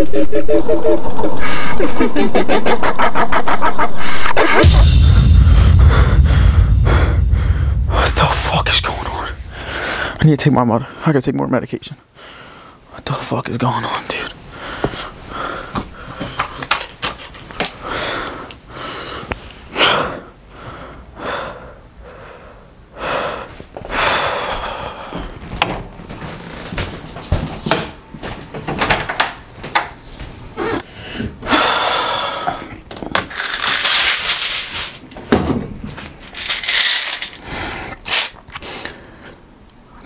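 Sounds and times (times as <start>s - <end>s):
man breathing heavily: 4.0s - 11.2s, 12.1s - 12.9s, 14.5s - 16.6s, 17.7s - 25.5s, 30.6s - 32.8s, 37.4s - 38.0s.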